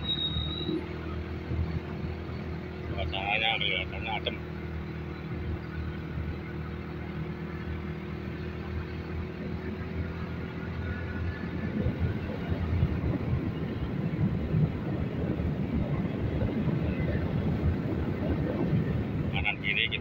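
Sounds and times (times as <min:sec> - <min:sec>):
motorcycle engine cruising: 0:00.0 - 0:20.0
rough low rumble: 0:10.9 - 0:20.0.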